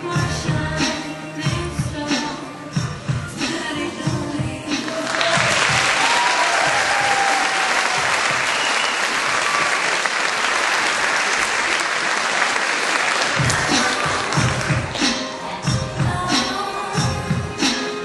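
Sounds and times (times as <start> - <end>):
audience applauding: 4.8 - 15.2.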